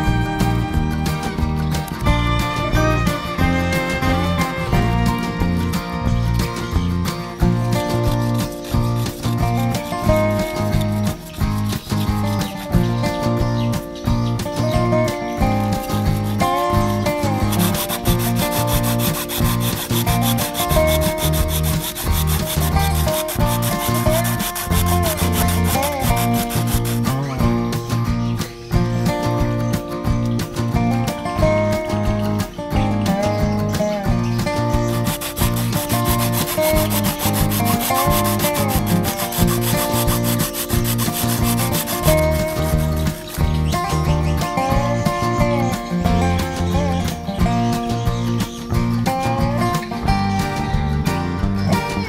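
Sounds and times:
background music: 0:00.0 - 0:52.0
hacksaw sawing through plastic pipe: 0:07.8 - 0:13.0, 0:15.5 - 0:27.2, 0:34.8 - 0:43.7.

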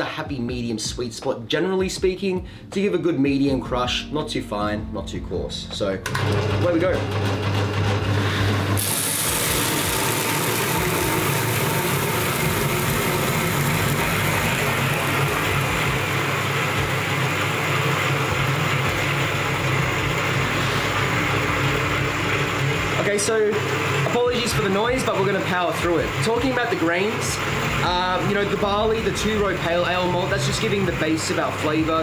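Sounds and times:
grain crushing in roller mill: 0:06.0 - 0:32.0
electric motor humming: 0:06.1 - 0:32.0.

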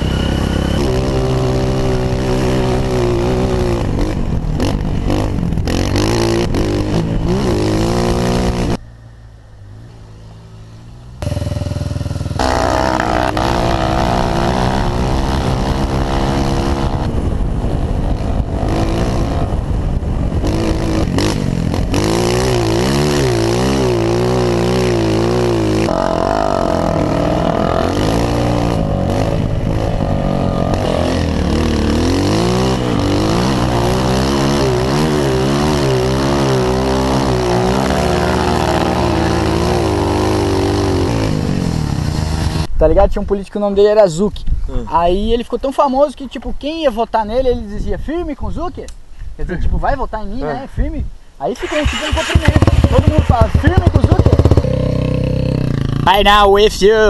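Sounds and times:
motorcycle engine revving: 0:00.0 - 0:08.8, 0:11.0 - 0:42.7, 0:51.6 - 0:56.3.

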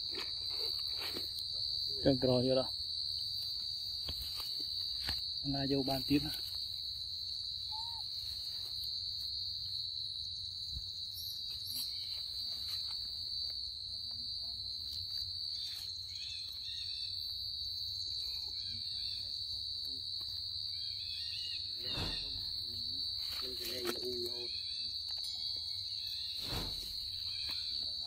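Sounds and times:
insect chorus droning: 0:00.0 - 0:28.0
faint short chirps: 0:21.8 - 0:22.6.

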